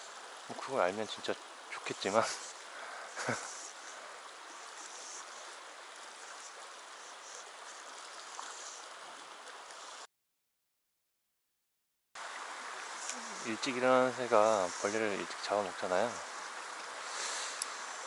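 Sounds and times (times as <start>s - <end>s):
stream running over rocks: 0.0s - 10.1s, 12.2s - 18.0s.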